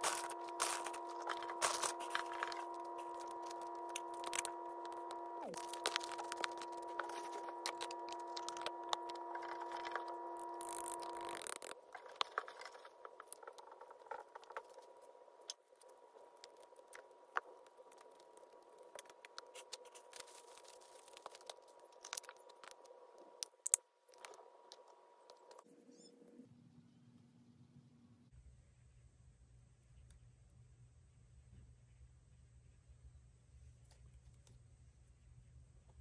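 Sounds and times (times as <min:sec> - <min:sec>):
hands crackling through leaf litter: 0:00.0 - 0:04.5
steady hum: 0:00.0 - 0:29.9.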